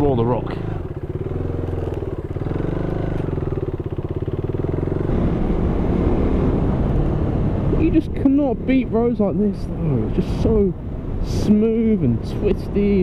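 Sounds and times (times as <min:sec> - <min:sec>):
motorcycle engine accelerating: 0:00.0 - 0:09.0.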